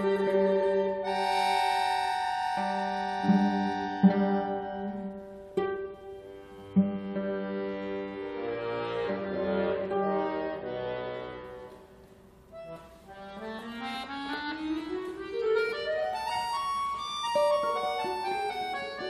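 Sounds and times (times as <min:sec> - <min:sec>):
cello: 0:00.0 - 0:01.6, 0:02.6 - 0:12.2
guitar: 0:00.0 - 0:10.4
accordion: 0:00.0 - 0:19.0.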